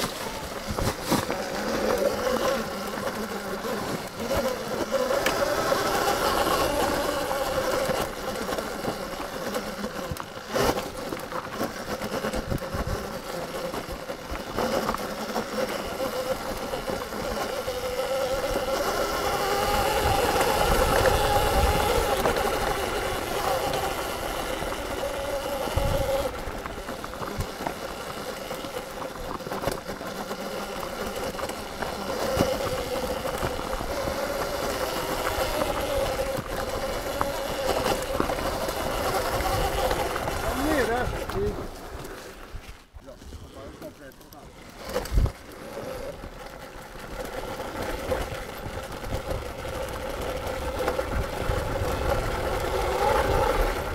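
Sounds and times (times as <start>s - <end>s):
electric motor whining: 0.0s - 43.9s, 44.5s - 53.9s.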